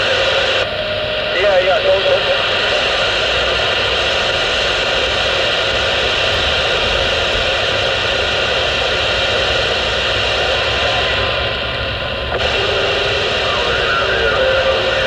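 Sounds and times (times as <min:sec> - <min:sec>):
radio static hiss: 0:00.0 - 0:00.7, 0:01.3 - 0:15.0.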